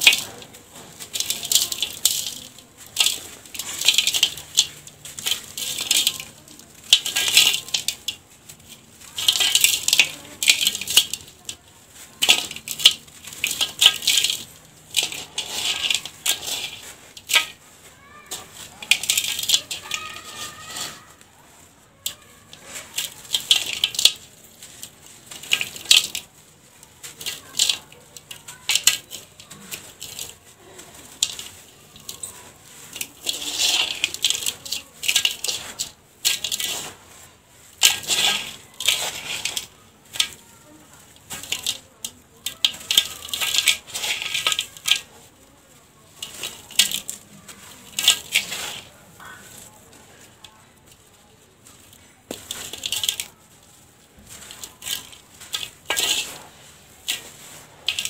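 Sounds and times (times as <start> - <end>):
grains ticking on metal: 0.0 - 21.2
hands crushing dry dirt: 0.0 - 58.0.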